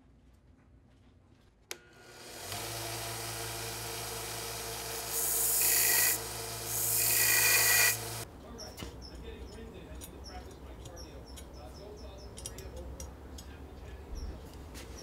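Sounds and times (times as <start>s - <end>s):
belt sander motor hum: 1.7s - 8.2s
metal rod grinding on belt: 5.0s - 8.2s.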